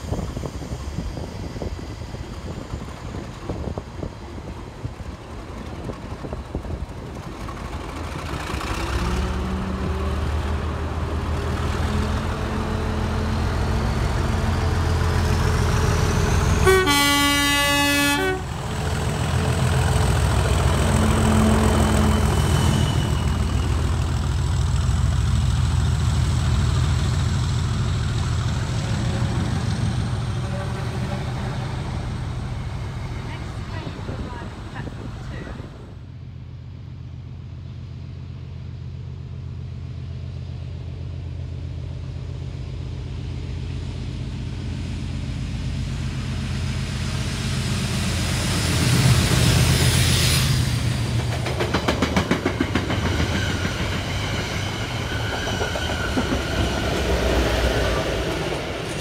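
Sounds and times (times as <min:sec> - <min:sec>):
locomotive engine running: 0:02.2 - 0:37.3
train horn blast: 0:16.6 - 0:18.5, 0:30.4 - 0:31.7.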